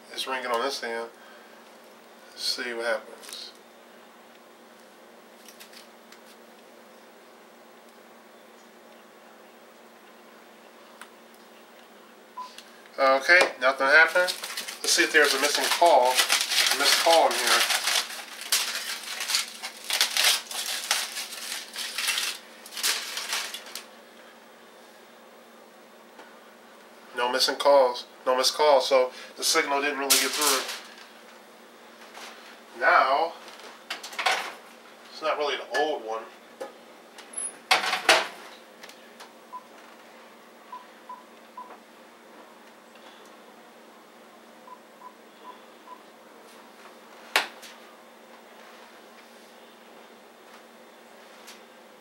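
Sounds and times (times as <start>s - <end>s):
aluminum foil crinkling: 5.4s - 6.4s, 13.9s - 23.9s, 30.0s - 31.2s.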